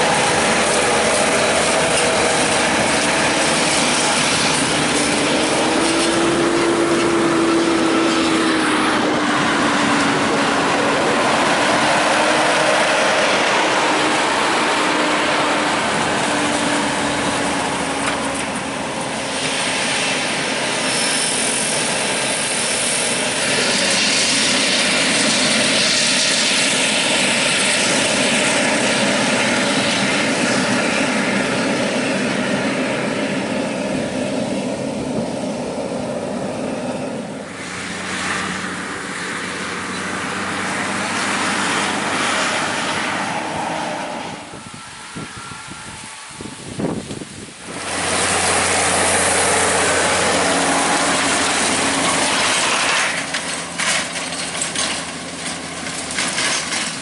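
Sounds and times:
forage harvester chopping corn: 0.0s - 35.3s, 47.1s - 57.0s
broad rushing noise: 0.0s - 57.0s
tractor engine pulling away: 0.0s - 57.0s.

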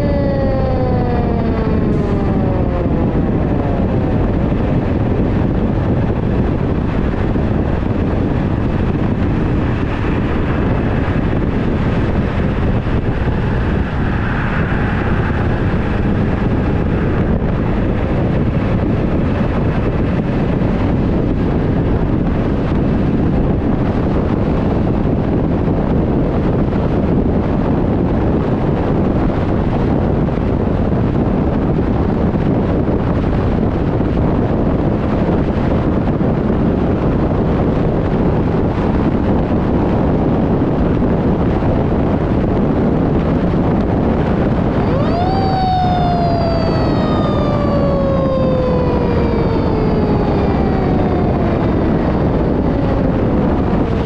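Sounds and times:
siren winding down: 0.0s - 6.8s, 44.4s - 54.0s
truck road noise: 0.0s - 27.5s, 38.7s - 54.0s
wind rushing over microphone: 0.0s - 54.0s.

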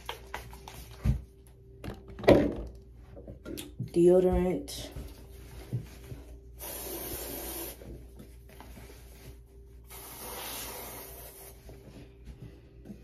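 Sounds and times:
aerosol deodorant spray hissing: 6.6s - 7.8s, 9.9s - 11.5s.

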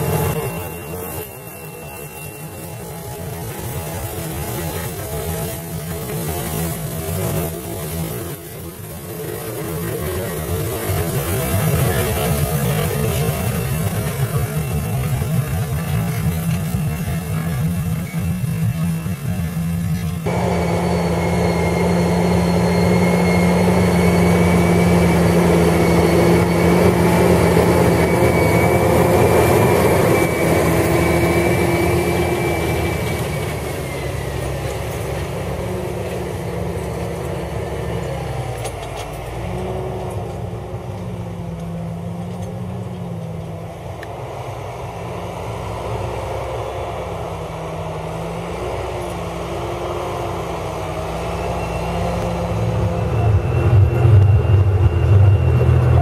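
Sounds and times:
high steady whine: 0.0s - 56.0s
tractor diesel engine under load: 0.0s - 56.0s.

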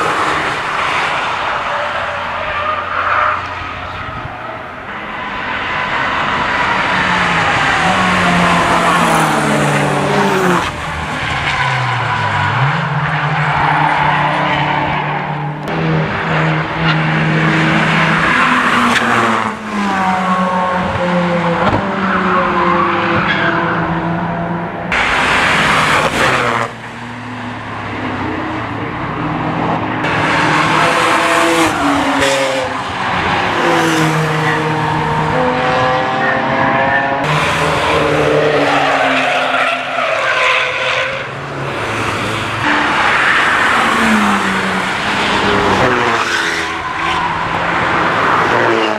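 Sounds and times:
race car engines revving: 0.0s - 48.9s.

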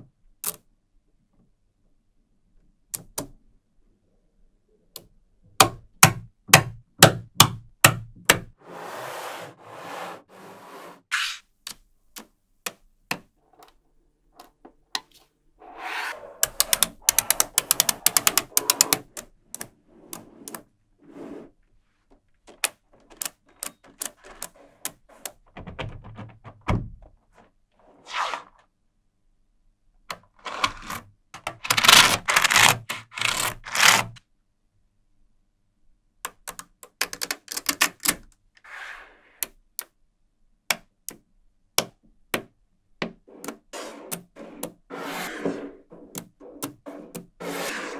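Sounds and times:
magnetic metal balls clicking: 16.4s - 19.7s.

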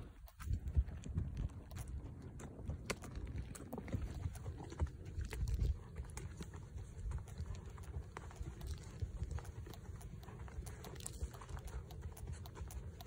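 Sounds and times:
horse hooves on stony dirt: 0.0s - 13.0s
low rumble on microphone: 0.0s - 13.0s.

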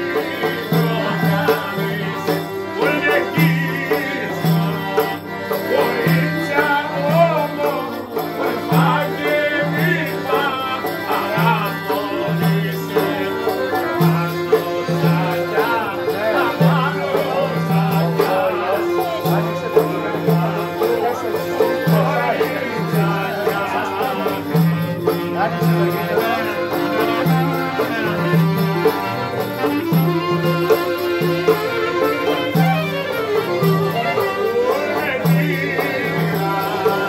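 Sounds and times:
accordion: 0.0s - 37.0s
clarinet melody: 29.1s - 35.0s.

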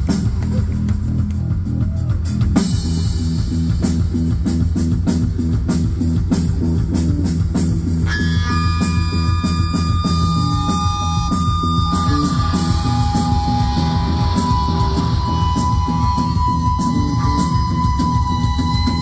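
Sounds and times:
drum kit beat: 0.0s - 19.0s
electric guitar riff: 8.0s - 19.0s
held high guitar notes: 8.1s - 19.0s.

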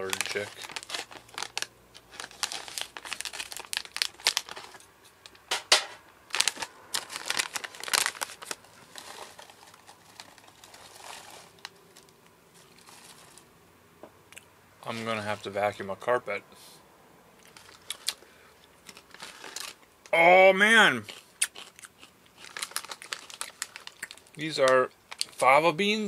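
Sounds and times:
hand rummaging in bag: 0.0s - 4.8s, 6.3s - 13.4s
plastic snack bag crinkling: 0.0s - 5.4s, 6.3s - 13.5s, 17.4s - 19.9s, 21.1s - 25.5s.

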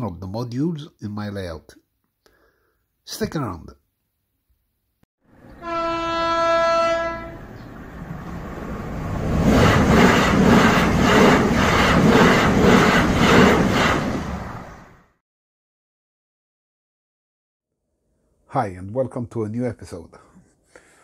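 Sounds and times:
train horn: 5.5s - 7.5s.

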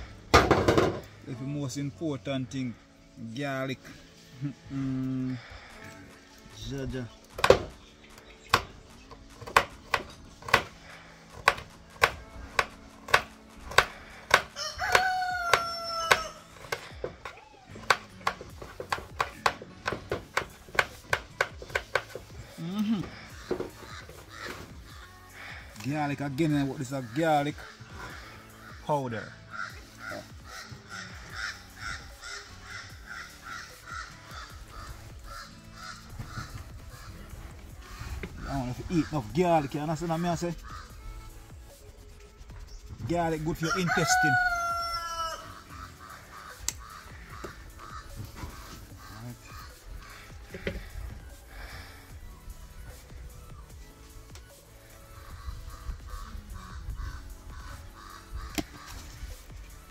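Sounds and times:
rooster crowing: 14.5s - 16.6s, 43.6s - 45.6s.

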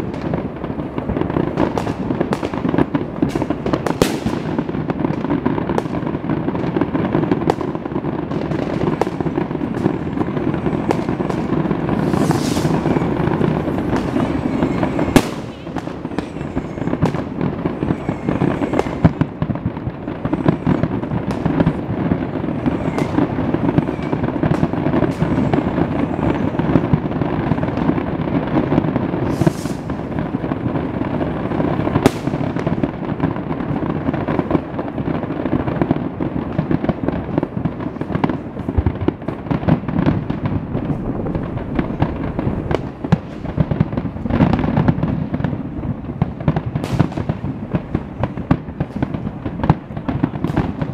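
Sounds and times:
firework shell bursts and crackling: 0.0s - 50.9s
loud firework bangs: 0.0s - 50.9s
firework whistles: 1.2s - 33.3s.

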